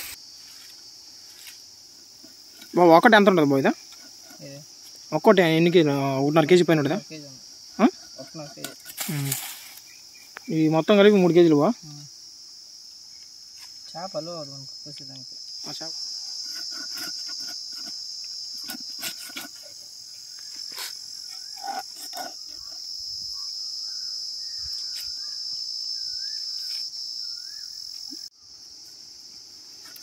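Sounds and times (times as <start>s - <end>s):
high-pitched insect drone: 0.0s - 30.0s.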